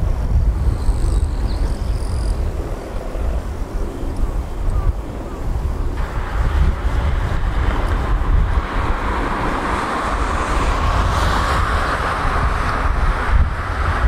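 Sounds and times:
distant jet engine hiss: 0.0 - 14.0
wind buffeting microphone: 0.0 - 14.0.

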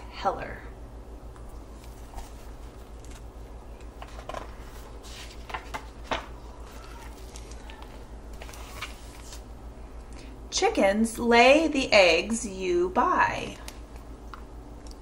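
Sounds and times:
steady low hum: 0.0 - 15.0
book pages turning: 1.7 - 9.5.

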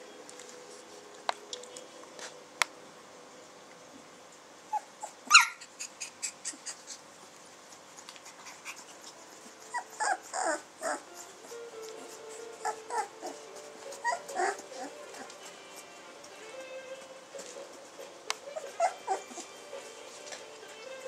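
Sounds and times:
faint steady hum: 0.0 - 21.0
puppies whining: 4.7 - 7.0, 8.2 - 16.6, 17.4 - 20.4
puppy crying: 4.7 - 7.0, 9.6 - 15.8, 18.4 - 19.5.

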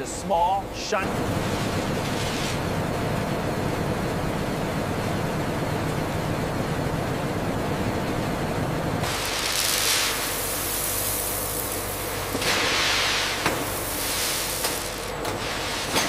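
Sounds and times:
low machine rumble: 0.0 - 16.0
rushing hiss: 9.0 - 16.0.

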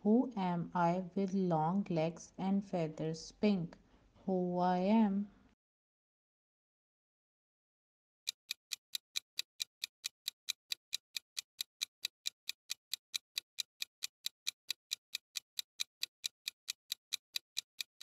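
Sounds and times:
fast clock ticks: 8.3 - 18.0.

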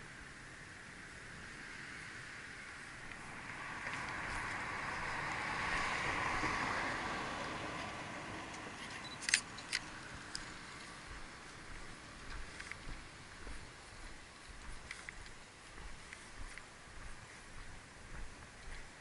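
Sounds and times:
camera shutter clicks: 9.1 - 9.9.

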